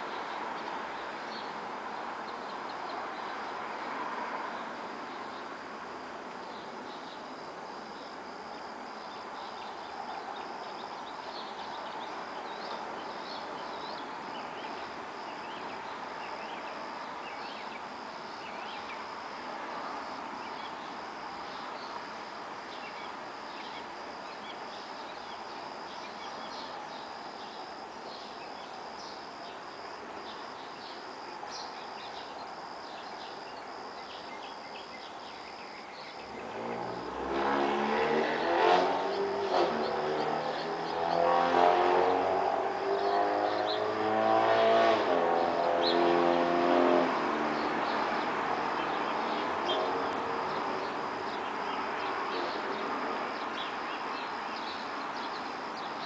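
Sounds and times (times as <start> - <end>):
crickets trilling: 0.0 - 56.0
distant traffic hum: 0.0 - 56.0
vehicle passing close by: 36.2 - 55.1.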